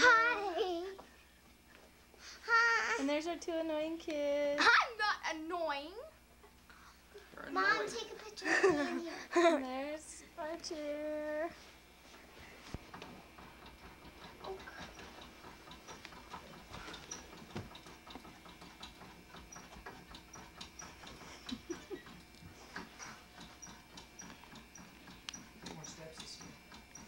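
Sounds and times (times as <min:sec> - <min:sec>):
faint clicks and knocks: 0:12.7 - 0:27.0
light even ticking: 0:23.4 - 0:27.0.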